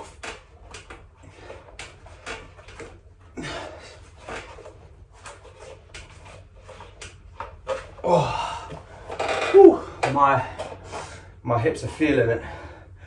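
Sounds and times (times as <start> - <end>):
man breathing hard: 3.2 - 4.2, 8.0 - 9.1, 9.8 - 11.4, 12.4 - 13.0.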